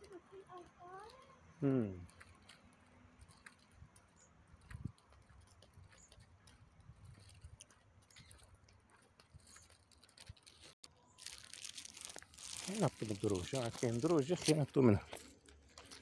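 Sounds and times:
footsteps on asphalt: 2.1 - 10.8, 12.0 - 16.0.

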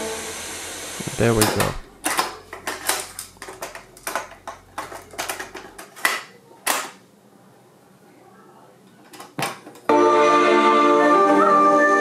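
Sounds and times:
cassette clicking into deck: 1.4 - 7.0.

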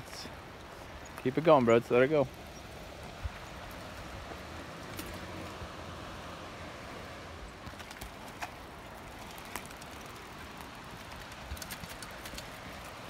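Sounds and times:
bike clicks and knocks: 4.8 - 5.5, 7.6 - 13.0.

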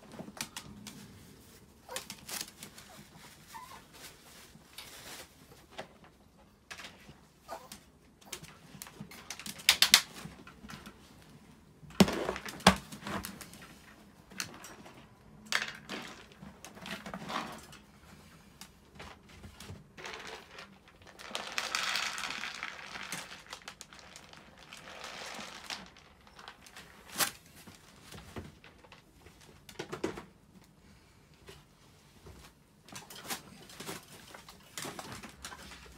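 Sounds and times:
crinkling rustle: 0.0 - 11.2, 18.9 - 29.6, 31.5 - 35.9.

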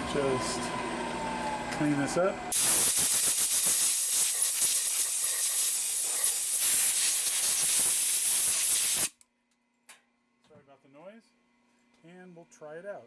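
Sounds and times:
compressed air blow gun hissing: 2.6 - 9.1.

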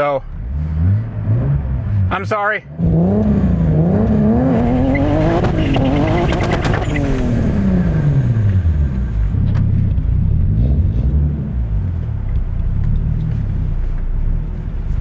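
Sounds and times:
car engine revving: 0.0 - 15.0.

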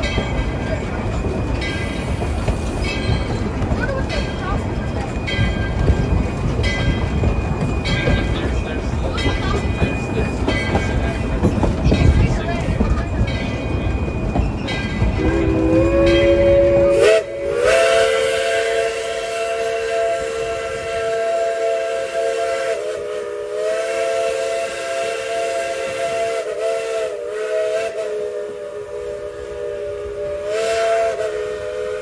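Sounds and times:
train running rumble: 0.0 - 32.0
steam whistle blast: 15.2 - 32.0.

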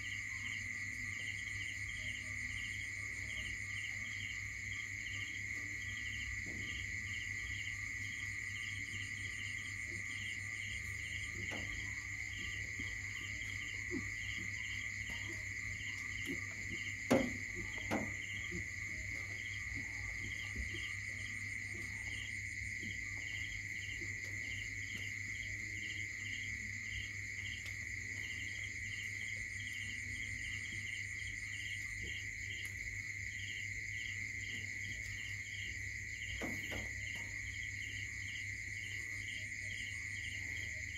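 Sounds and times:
crickets and insects chirping: 0.0 - 40.9.

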